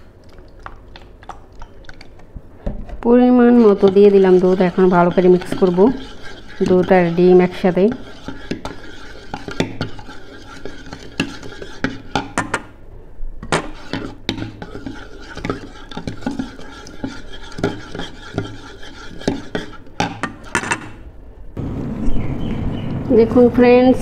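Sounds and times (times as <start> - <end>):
whisk clinking and scraping bowl: 3.0 - 12.7, 13.4 - 21.0.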